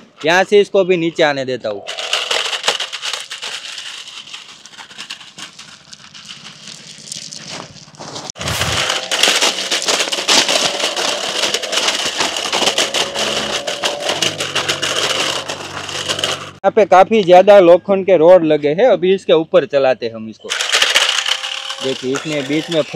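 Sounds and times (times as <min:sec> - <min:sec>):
tyres crackling over stones: 0:01.8 - 0:16.6, 0:20.5 - 0:22.9
electric motors whining: 0:08.8 - 0:16.6, 0:20.5 - 0:22.9.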